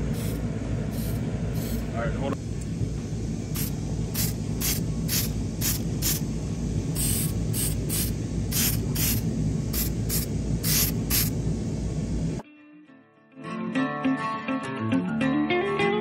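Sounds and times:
spray paint can hissing: 0.1 - 1.9, 3.5 - 6.3, 6.9 - 11.4.

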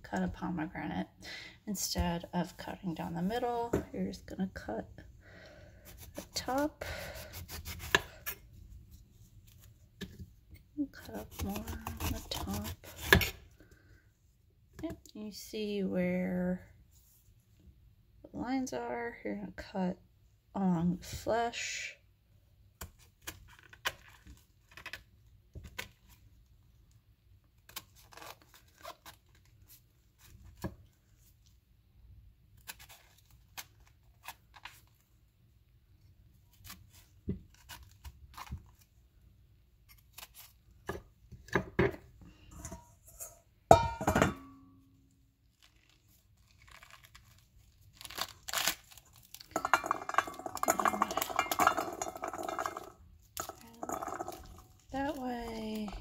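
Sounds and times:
knife scraping fruit rind: 5.8 - 8.5, 10.9 - 13.5
rind tearing and crunching: 27.6 - 30.6, 32.5 - 35.0, 36.5 - 38.9, 39.8 - 40.9, 45.4 - 54.8.

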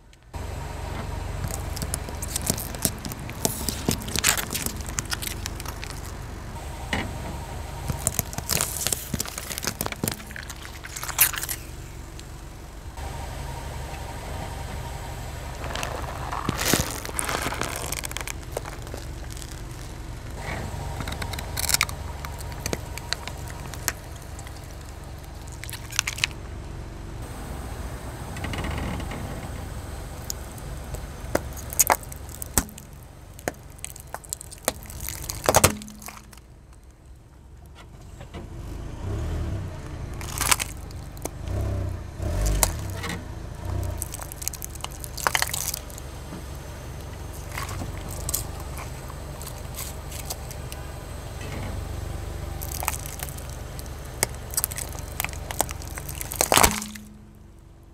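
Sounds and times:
car tyre rolling over asphalt: 0.0 - 57.9
dull thuds of plastic flattened: 1.4 - 6.2, 7.9 - 11.7, 15.6 - 20.4, 31.3 - 36.5, 52.6 - 57.3
plastic toys cracking: 1.4 - 6.3, 7.8 - 12.4, 15.6 - 20.4, 21.0 - 26.4, 30.2 - 37.0, 40.1 - 50.8, 52.5 - 57.4.

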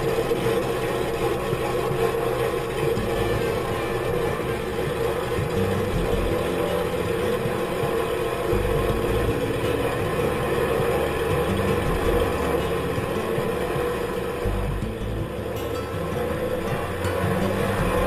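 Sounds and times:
propeller plane engine idling: 0.0 - 18.0.

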